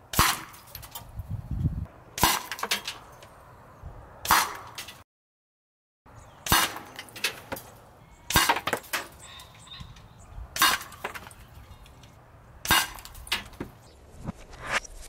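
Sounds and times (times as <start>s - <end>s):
air rifle shots: 0.1s - 0.6s, 2.2s - 2.8s, 4.2s - 4.8s, 6.4s - 7.6s, 8.3s - 9.1s, 10.6s - 11.2s, 12.6s - 13.6s.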